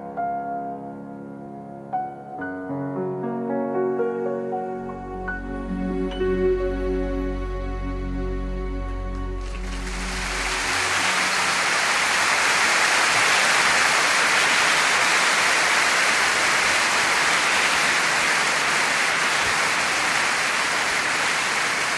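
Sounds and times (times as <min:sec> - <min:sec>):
steady rushing hiss: 0:09.4 - 0:21.9.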